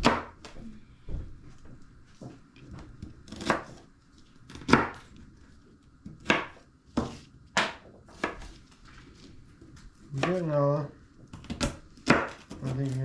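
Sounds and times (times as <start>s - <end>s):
knife chopping on cutting board: 0.0s - 0.5s, 3.0s - 3.8s, 4.5s - 5.1s, 6.1s - 8.6s, 10.2s - 10.5s, 11.3s - 13.0s.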